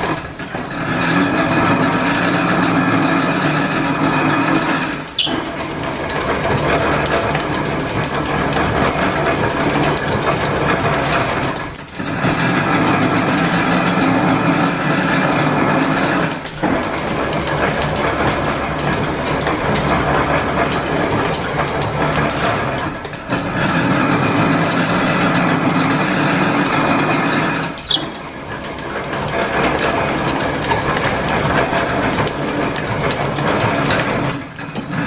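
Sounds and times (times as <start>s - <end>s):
belt squeal: 0.0s - 2.0s, 4.7s - 5.6s, 11.4s - 12.7s, 22.8s - 24.2s, 33.8s - 35.0s
belt-driven machine clattering: 0.0s - 35.0s.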